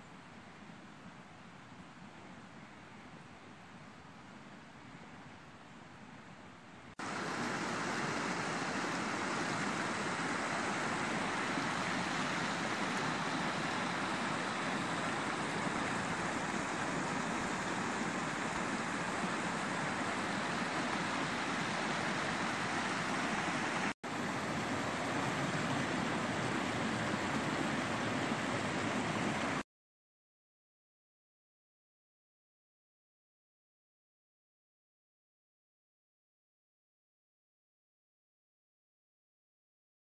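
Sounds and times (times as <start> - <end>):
creek rushing over rocks: 7.0 - 29.6.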